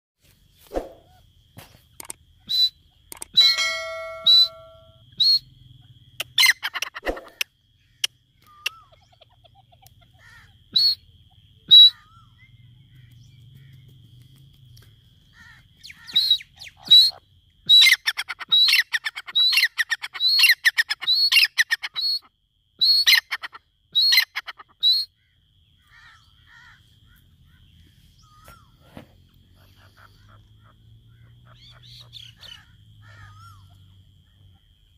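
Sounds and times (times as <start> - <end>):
francolin calling: 1.0 - 14.2, 14.8 - 34.9
faint steady high tone: 3.4 - 5.6.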